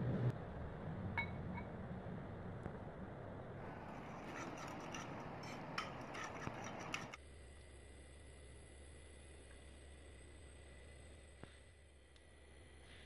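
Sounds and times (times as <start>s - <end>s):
metal spoon clinking and scraping bowl: 3.7s - 7.2s.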